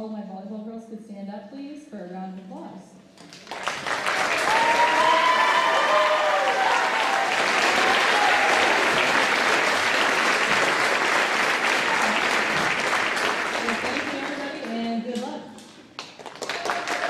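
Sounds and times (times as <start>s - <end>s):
audience applauding: 3.2s - 14.9s, 16.0s - 17.0s
voices cheering: 4.0s - 14.0s, 16.5s - 17.0s.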